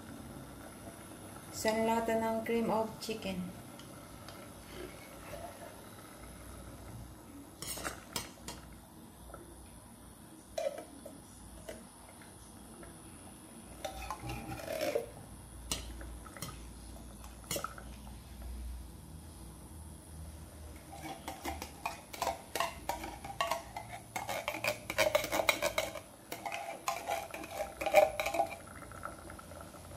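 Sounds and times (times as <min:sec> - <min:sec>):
metal spoon scraping a tin can: 0:13.8 - 0:15.8, 0:20.8 - 0:28.7
spoon clinking on a metal pot: 0:20.9 - 0:28.6.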